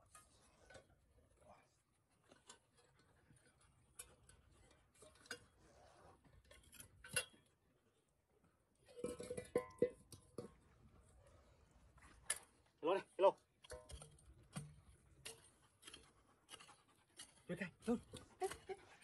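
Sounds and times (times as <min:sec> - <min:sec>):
metal tools clicking and knocking: 0:06.5 - 0:07.6, 0:13.6 - 0:19.0.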